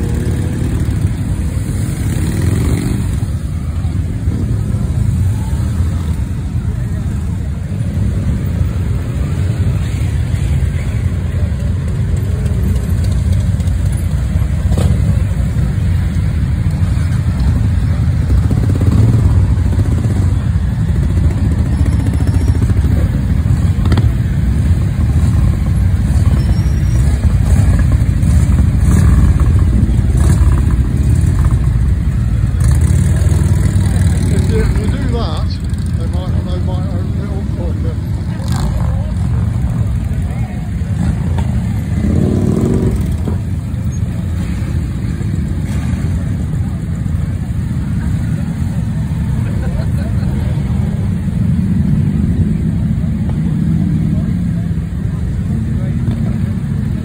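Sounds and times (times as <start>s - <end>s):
motorcycle engines rumbling: 0.0s - 57.0s.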